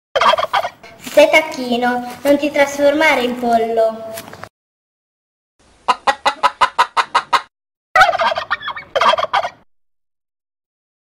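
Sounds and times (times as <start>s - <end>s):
turkey gobbling: 0.2s - 0.8s, 5.8s - 9.7s.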